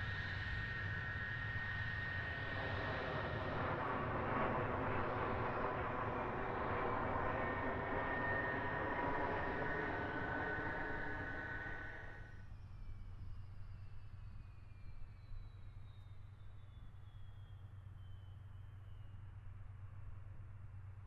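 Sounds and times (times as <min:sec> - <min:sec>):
jet engines whining: 0:00.0 - 0:12.4.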